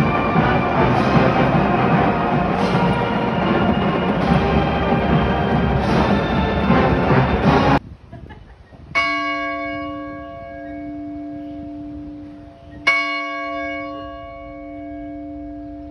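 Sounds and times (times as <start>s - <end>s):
large chapel bell ringing: 0.0s - 7.7s, 9.0s - 15.9s
music: 0.0s - 7.8s.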